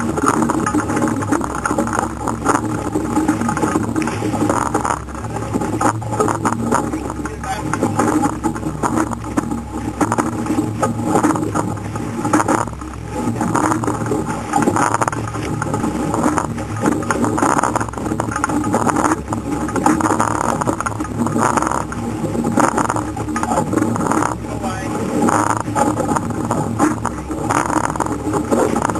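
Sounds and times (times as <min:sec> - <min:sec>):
water rushing along boat hull: 0:00.0 - 0:28.9
wind buffeting microphone: 0:00.0 - 0:28.9.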